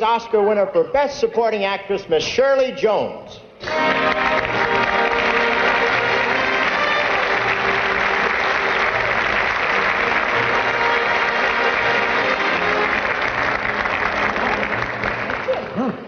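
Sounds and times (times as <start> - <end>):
play-on music: 3.6 - 15.4
audience applauding: 3.6 - 16.0.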